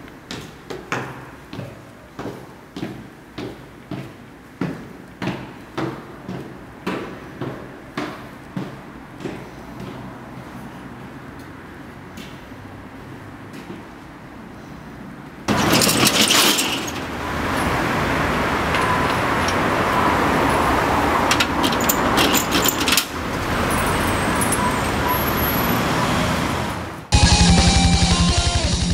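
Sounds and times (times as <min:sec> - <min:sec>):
passing cars: 0:06.6 - 0:27.2
drum-driven rock music: 0:27.1 - 0:28.9.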